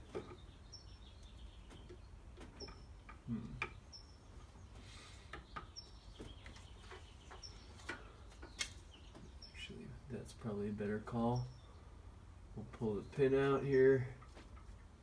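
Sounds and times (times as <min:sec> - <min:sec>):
small bird chirping: 0:00.0 - 0:10.2.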